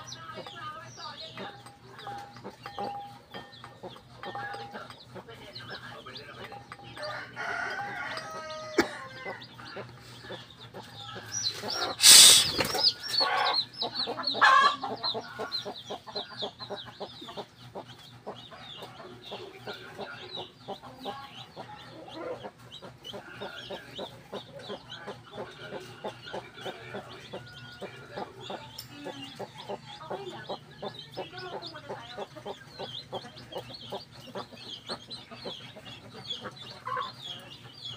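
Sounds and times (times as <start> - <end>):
chicks peeping: 0.0 - 37.9
hen clucking: 0.0 - 37.9
rooster crowing: 7.0 - 9.4.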